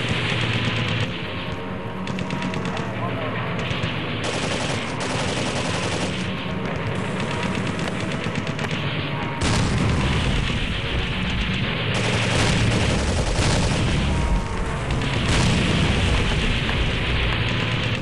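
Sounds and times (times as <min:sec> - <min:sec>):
paintball markers firing: 0:00.0 - 0:08.9, 0:14.8 - 0:18.0.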